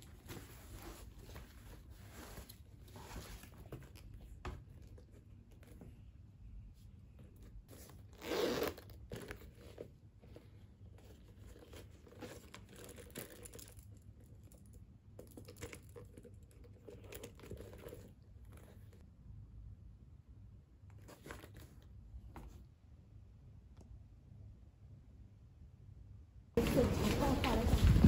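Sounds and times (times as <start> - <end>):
leather handbag rustling on paper bag: 26.6 - 28.0.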